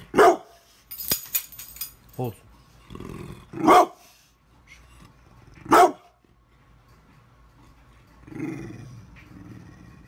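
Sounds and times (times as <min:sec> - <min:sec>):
dog barking: 0:00.1 - 0:00.6, 0:03.6 - 0:04.0, 0:05.7 - 0:06.2.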